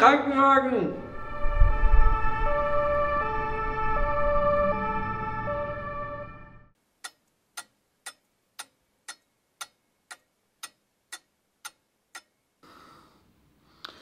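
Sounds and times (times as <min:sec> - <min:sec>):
faint room hiss: 0:06.8 - 0:14.0
wall clock ticking: 0:07.0 - 0:12.4.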